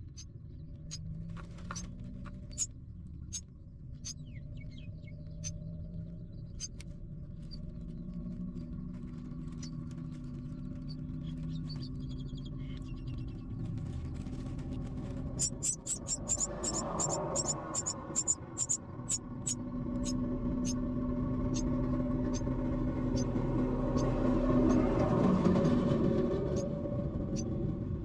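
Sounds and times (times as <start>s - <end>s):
nestlings cheeping: 0.0s - 5.6s, 15.3s - 20.8s
steady low hum: 0.0s - 28.0s.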